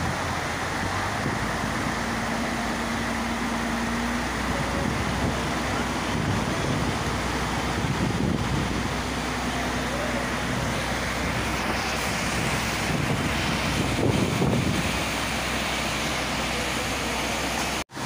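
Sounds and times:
wind on microphone: 0:04.6 - 0:09.1, 0:10.6 - 0:15.2.

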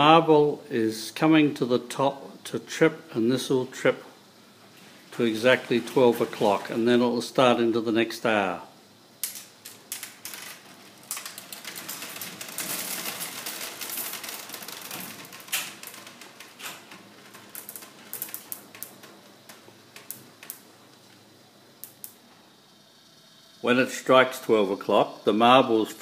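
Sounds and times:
marbles clattering down wooden tracks: 0:09.2 - 0:20.6.

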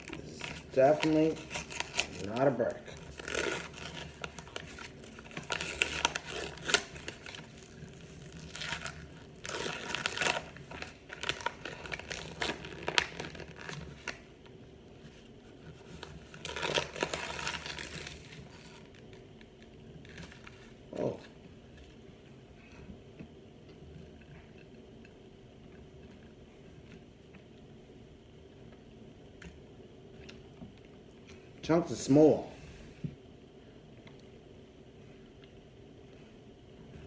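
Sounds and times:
paper wrapping crinkling: 0:00.0 - 0:14.3, 0:15.0 - 0:22.0.

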